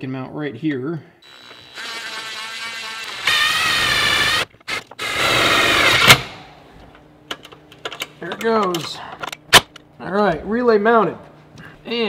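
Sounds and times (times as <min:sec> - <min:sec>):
cordless drill motor whining: 0:01.2 - 0:06.2.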